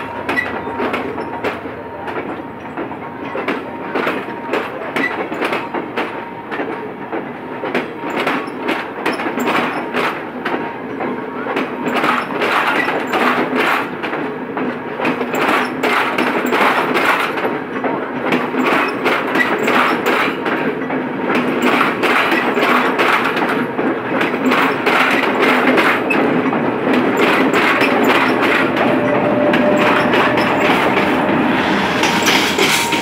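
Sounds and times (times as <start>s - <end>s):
train wheels clacking over rail joints: 0.0s - 33.0s.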